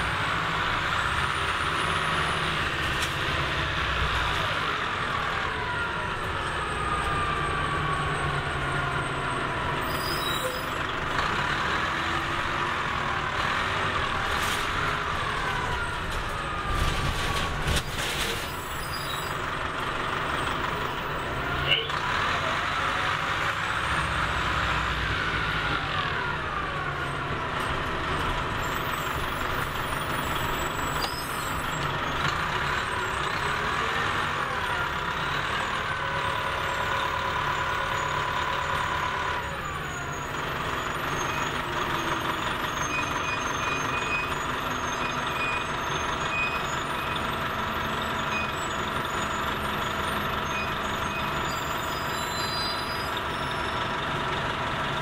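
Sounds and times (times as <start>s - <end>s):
bus engine whine: 0.0s - 55.0s.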